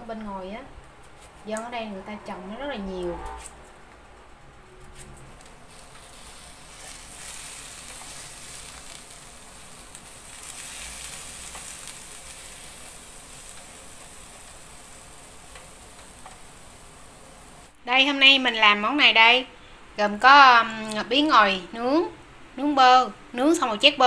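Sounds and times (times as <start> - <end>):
zucchini sizzling on a grill: 5.7 - 17.8.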